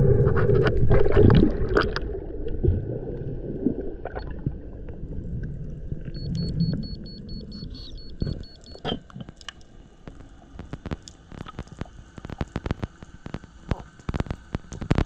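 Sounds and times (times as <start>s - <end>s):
high electronic beeps: 6.2s - 8.8s
sharp clicks and ticks: 8.3s - 15.0s.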